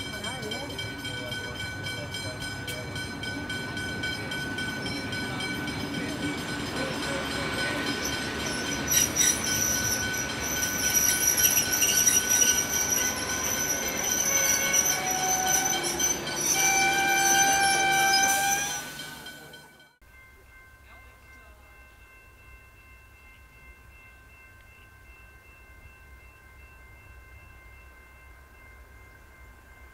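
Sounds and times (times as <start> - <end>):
train wheels rolling on rails: 0.0 - 19.8
high-pitched wheel squealing: 8.9 - 19.2.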